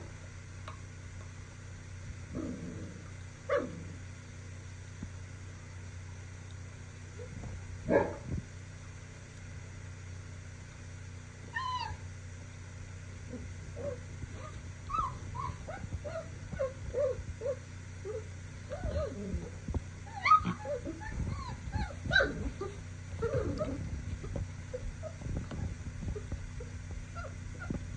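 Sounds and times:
puppy high squeal: 11.5 - 12.0, 14.9 - 19.2, 20.1 - 22.4
puppy yelp: 11.5 - 12.0, 13.8 - 19.5, 20.1 - 23.8, 27.1 - 27.8
puppies whimpering and squeaking: 11.6 - 12.0, 13.8 - 19.5, 20.1 - 27.8.

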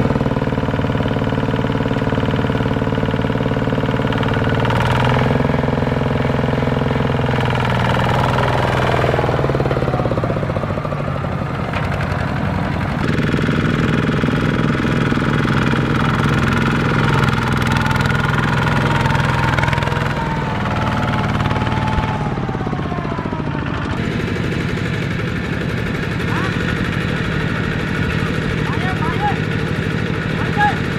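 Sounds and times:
diesel engines running under load: 0.0 - 30.9.

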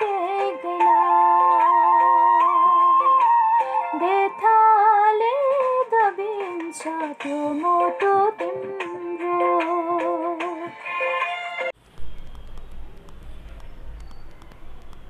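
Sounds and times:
woman singing: 0.0 - 10.8
instrumental backing music: 0.0 - 11.8.

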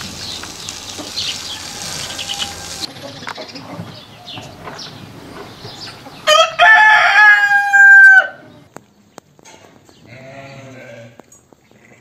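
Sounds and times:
rooster crowing: 1.0 - 2.9, 6.2 - 8.5.

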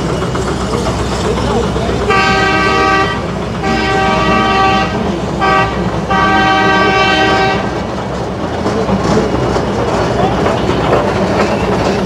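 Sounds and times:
train rumble: 0.0 - 12.0
steam locomotive whistle blasts: 2.1 - 7.7.

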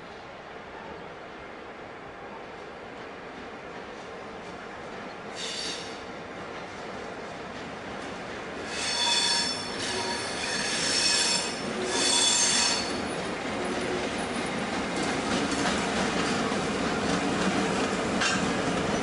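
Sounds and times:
locomotive wheels squealing on rails: 5.3 - 6.2, 8.6 - 14.1.

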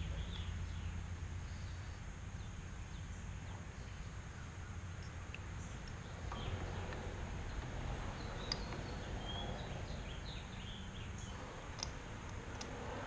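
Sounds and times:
birds chirping: 0.0 - 13.0
low background rumble: 0.0 - 13.0
light clicks: 5.0 - 9.7, 11.2 - 12.8.

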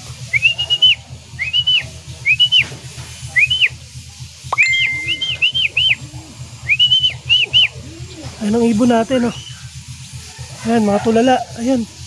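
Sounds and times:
person whistling short notes: 0.3 - 2.7, 3.4 - 3.8, 4.5 - 6.0, 6.6 - 7.7.

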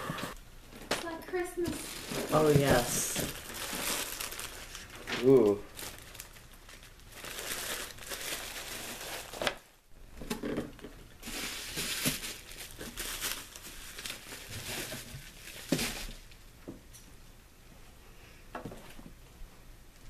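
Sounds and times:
plastic packaging crinkling: 0.8 - 9.7, 10.4 - 16.4.

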